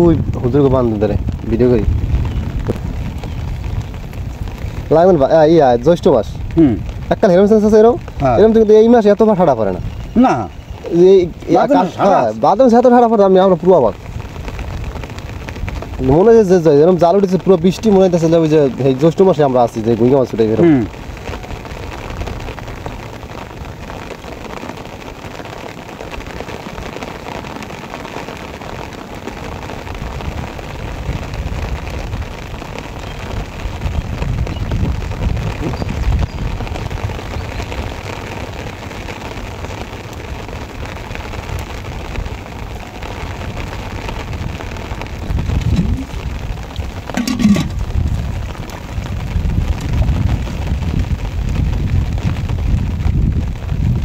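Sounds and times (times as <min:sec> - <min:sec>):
heavy rain on water: 0:00.0 - 0:54.0
low rumbling: 0:45.1 - 0:50.4.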